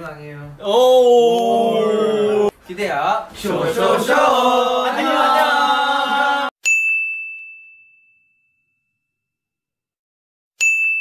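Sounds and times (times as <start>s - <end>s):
group of voices: 0.6s - 2.5s, 3.4s - 6.5s
bell-like ding: 6.6s - 9.3s, 10.6s - 11.0s.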